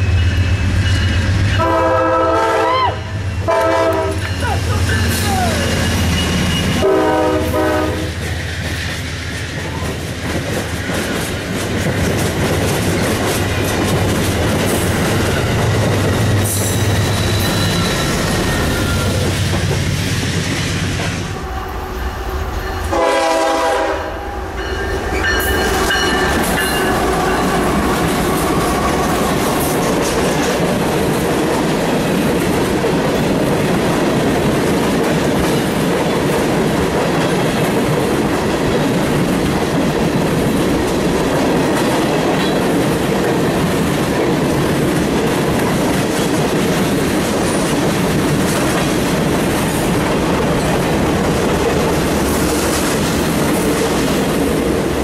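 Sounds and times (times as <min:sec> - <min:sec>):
train wheels rumbling on rails: 0:00.0 - 0:55.0
locomotive air horn: 0:01.6 - 0:04.2, 0:06.8 - 0:08.2, 0:22.9 - 0:24.4.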